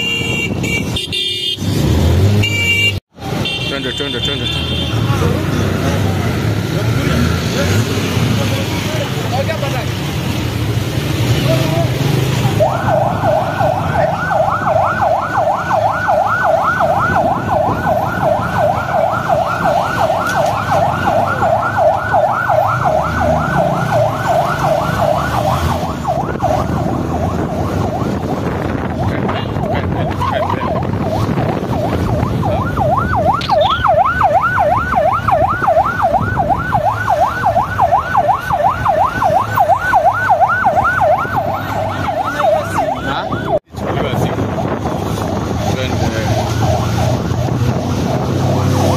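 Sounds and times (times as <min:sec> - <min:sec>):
traffic noise: 0:00.0 - 0:48.9
police siren yelping: 0:11.4 - 0:43.7, 0:44.3 - 0:48.9.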